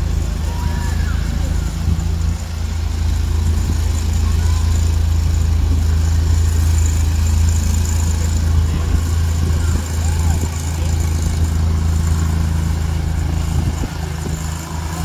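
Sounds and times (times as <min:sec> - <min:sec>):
atv engine droning: 0:00.0 - 0:15.0.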